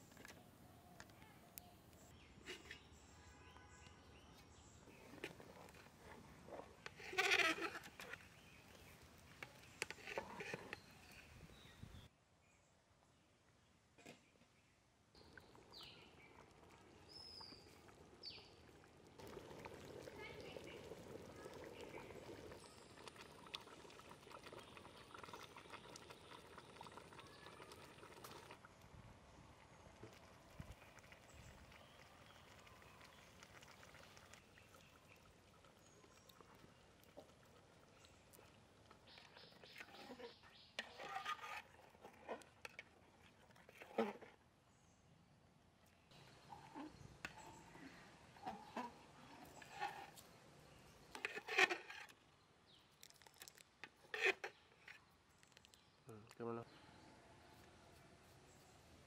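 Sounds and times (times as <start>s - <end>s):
thick food bubbling in pot: 4.8s - 12.1s, 15.0s - 56.5s
metal ladle stirring in pot: 4.9s - 11.2s, 35.8s - 44.3s, 46.2s - 52.1s.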